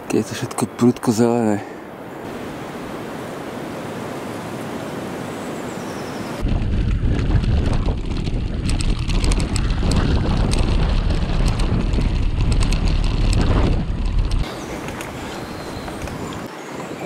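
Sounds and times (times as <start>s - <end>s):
wind buffeting microphone: 6.3s - 17.0s
bicycle clicks and rattles: 6.4s - 15.1s.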